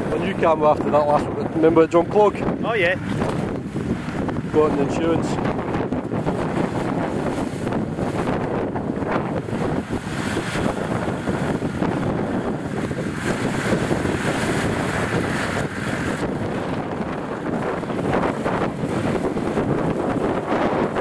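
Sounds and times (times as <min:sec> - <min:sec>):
off-road vehicle engines running: 0:00.0 - 0:21.0
strong wind buffeting microphone: 0:00.0 - 0:21.0.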